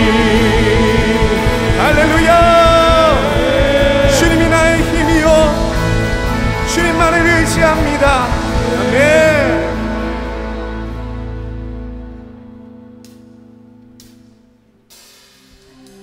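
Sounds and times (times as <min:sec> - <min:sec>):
voice holding long wordless notes: 0:00.0 - 0:11.1
worship band music: 0:00.0 - 0:16.0.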